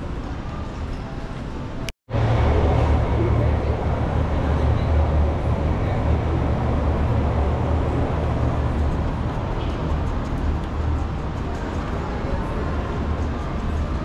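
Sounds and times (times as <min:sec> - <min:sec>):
low rumble: 0:02.1 - 0:11.2.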